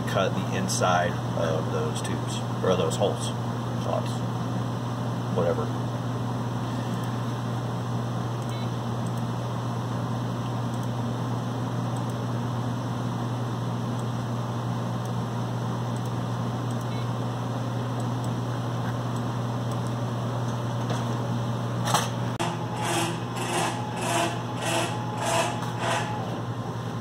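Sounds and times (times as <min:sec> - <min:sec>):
steady low hum: 0:00.0 - 0:27.0
short mechanical motor whirs: 0:22.4 - 0:26.5.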